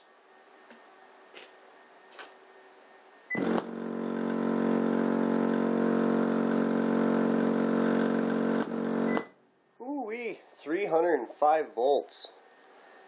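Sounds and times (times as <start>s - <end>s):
subwoofer buzzing hum: 3.3s - 9.5s.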